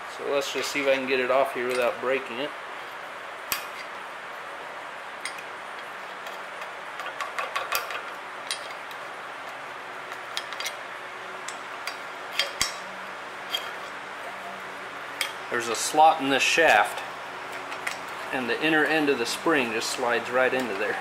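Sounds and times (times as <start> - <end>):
steady hiss: 10.9 - 21.0
metal tool clicking and scraping: 11.4 - 12.8, 13.5 - 14.0.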